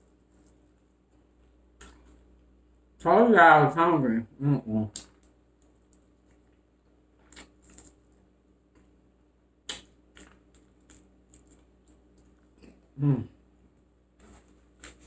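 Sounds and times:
chewing clicks and smacks: 0:01.8 - 0:02.2, 0:09.7 - 0:12.8.

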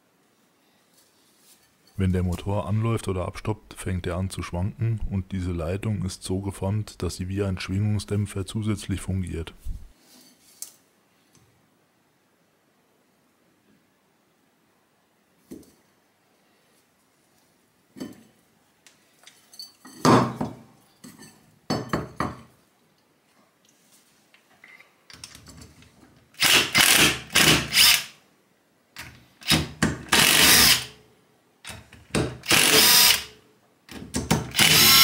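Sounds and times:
cordless drill-driver running: 0:26.4 - 0:28.1, 0:29.4 - 0:30.9, 0:32.4 - 0:33.3, 0:34.5 - 0:35.0.

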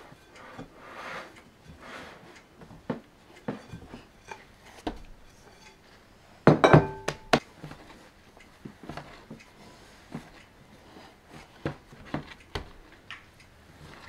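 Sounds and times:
soft knocks working dough: 0:00.0 - 0:14.0
glass bowl knocks and clinks: 0:06.5 - 0:07.4.

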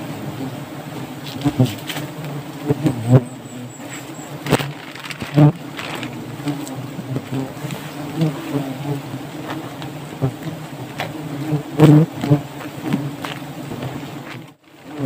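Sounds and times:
wasps buzzing: 0:00.0 - 0:15.0
knocks and rustles of brush: 0:01.2 - 0:02.8, 0:03.8 - 0:08.5, 0:09.4 - 0:11.2, 0:11.8 - 0:15.0.

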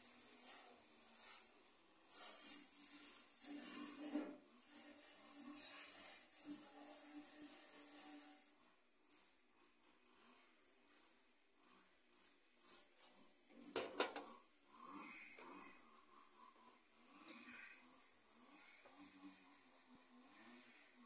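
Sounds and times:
rubbing and scraping handling noise: 0:00.2 - 0:14.7.

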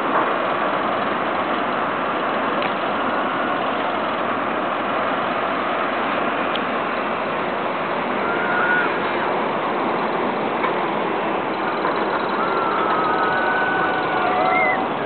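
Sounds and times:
ocean surf breaking: 0:05.2 - 0:15.0
faint high calls: 0:08.0 - 0:09.5, 0:11.5 - 0:15.0.

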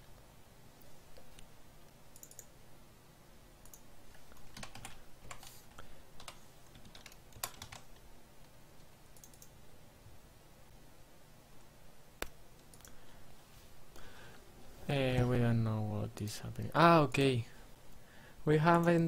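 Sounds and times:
computer keyboard typing: 0:02.1 - 0:02.5, 0:03.6 - 0:05.6, 0:06.2 - 0:08.0, 0:09.1 - 0:09.6.

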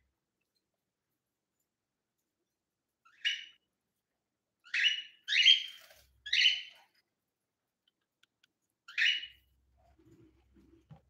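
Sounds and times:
parakeet calls: 0:03.0 - 0:03.6, 0:04.6 - 0:06.9, 0:08.9 - 0:09.4.

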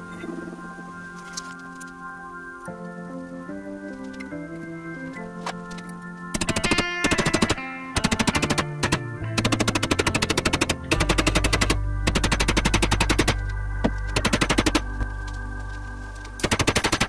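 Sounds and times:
held synth tones: 0:00.0 - 0:17.0
low bass note: 0:10.9 - 0:16.4.

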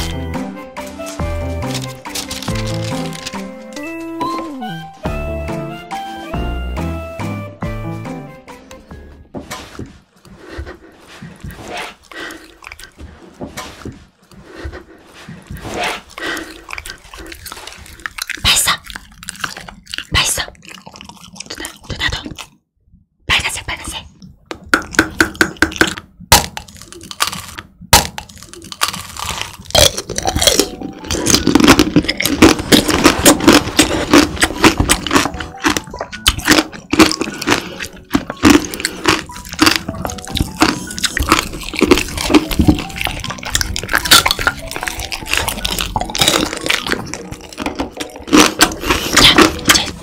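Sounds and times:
candy crunching between teeth: 0:00.8 - 0:04.6, 0:11.4 - 0:13.0, 0:15.3 - 0:22.6, 0:24.8 - 0:50.0
wet chewing: 0:00.9 - 0:04.5, 0:09.6 - 0:22.6, 0:24.2 - 0:50.0.

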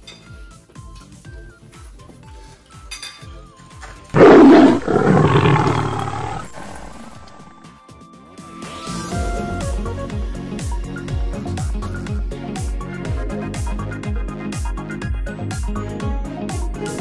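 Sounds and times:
background music with steady beat: 0:00.0 - 0:03.8, 0:07.9 - 0:17.0
big cat roar: 0:04.2 - 0:07.7.

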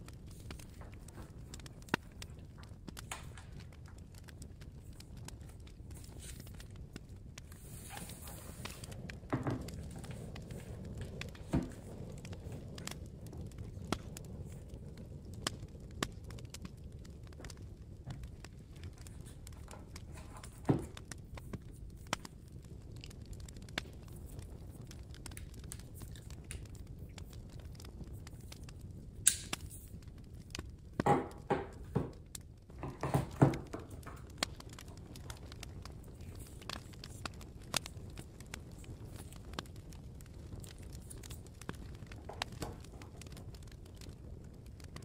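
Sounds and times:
packaging rustling and crinkling: 0:04.8 - 0:12.6, 0:18.0 - 0:21.7.

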